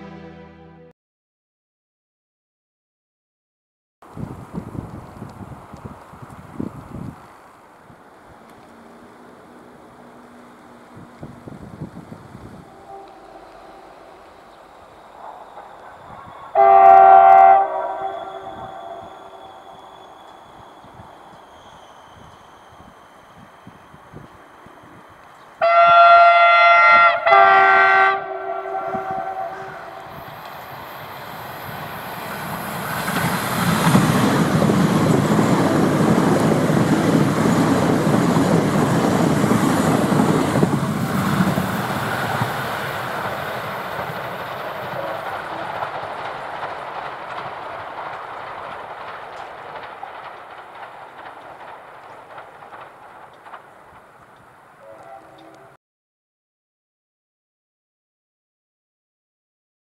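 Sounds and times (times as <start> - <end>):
train horn chord: 0.0 - 0.9, 12.6 - 14.6, 16.5 - 19.7, 25.6 - 30.2, 54.8 - 55.8
train rushing past: 4.2 - 55.8.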